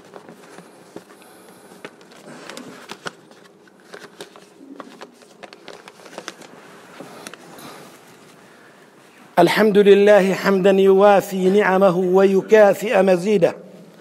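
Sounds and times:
small clicks and rustles: 0:00.0 - 0:07.4.

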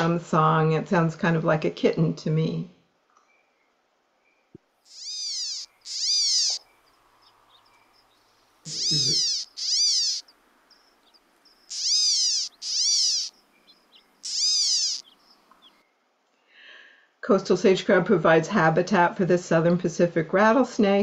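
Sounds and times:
bird mewing calls: 0:04.9 - 0:07.6, 0:08.2 - 0:15.8.

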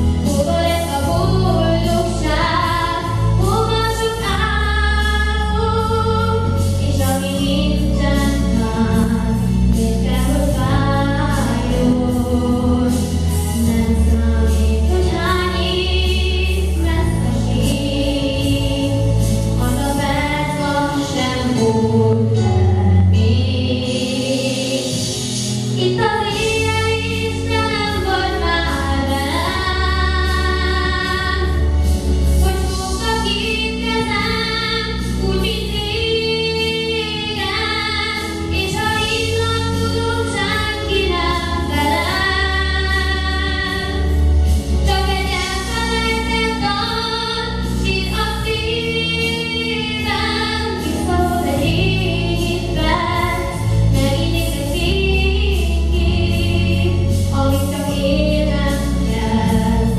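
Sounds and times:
musical accompaniment with bass line: 0:00.0 - 0:59.9
boy singing into a microphone: 0:44.9 - 0:59.9.

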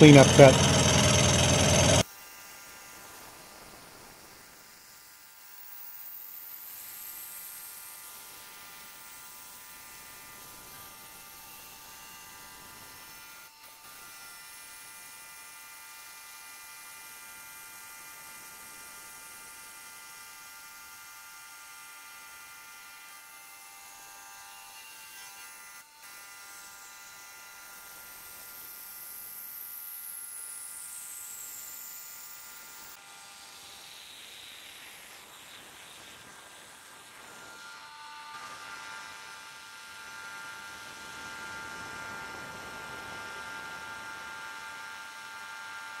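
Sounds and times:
milling machine cutting metal: 0:00.0 - 0:02.0.

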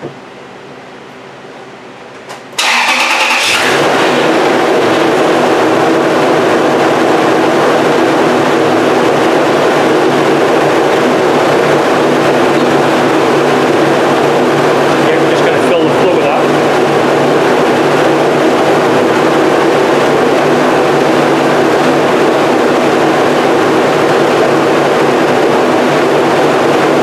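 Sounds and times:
engine starter cranking: 0:02.6 - 0:04.2
engine idling: 0:02.6 - 0:27.0.

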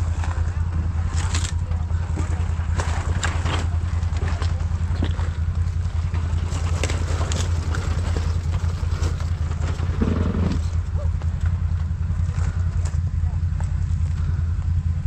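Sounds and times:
knocks and rattles: 0:00.0 - 0:13.1
engine running with low throb: 0:00.0 - 0:15.0.

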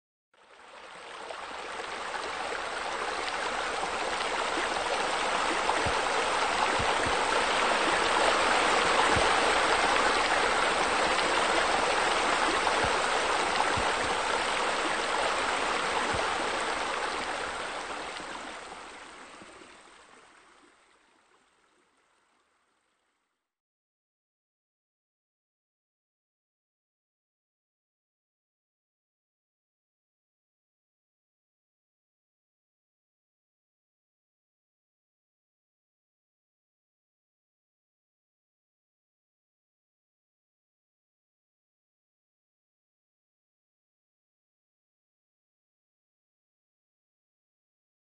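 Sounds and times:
rushing splashing water: 0:00.6 - 0:20.9.

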